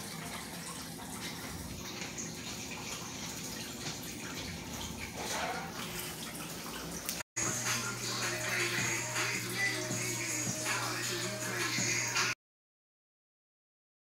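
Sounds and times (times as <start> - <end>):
water rushing in aquarium: 0.0 - 8.4.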